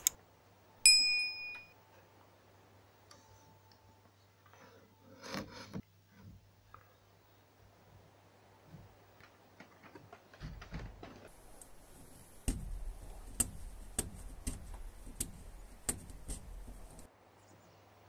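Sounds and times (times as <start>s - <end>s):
sharp loom knocks: 12.4s - 17.1s.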